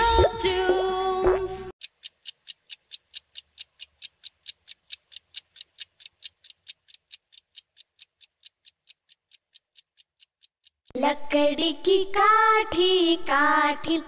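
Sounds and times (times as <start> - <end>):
clock ticking: 1.8 - 11.0.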